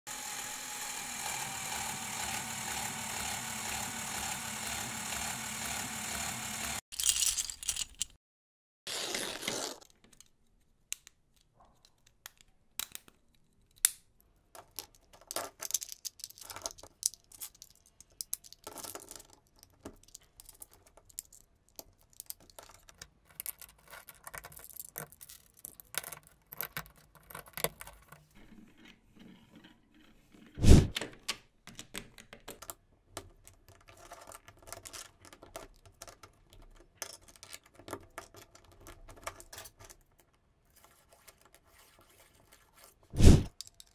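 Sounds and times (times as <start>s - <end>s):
plastic parts clicking and clattering: 9.9s - 41.6s, 43.5s - 43.9s.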